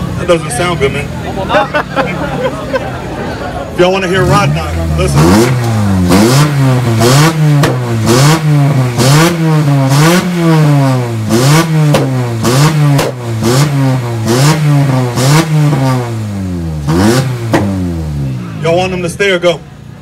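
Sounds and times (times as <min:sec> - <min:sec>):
car engine revving: 0:03.7 - 0:19.5.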